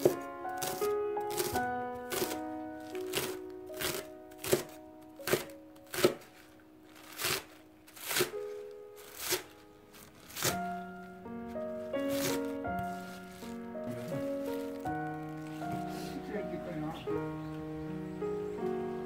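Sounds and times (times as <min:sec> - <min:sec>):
knife chopping on plastic board: 0:00.0 - 0:02.4, 0:03.0 - 0:06.3, 0:07.1 - 0:08.4
background music: 0:00.0 - 0:19.0.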